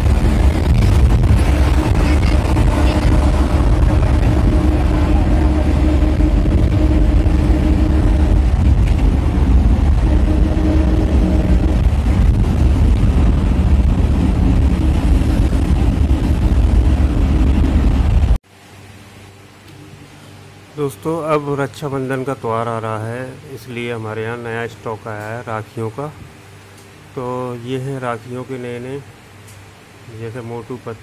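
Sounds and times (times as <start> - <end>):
road and wind noise: 0.0 - 18.4
engine hum: 0.0 - 21.6.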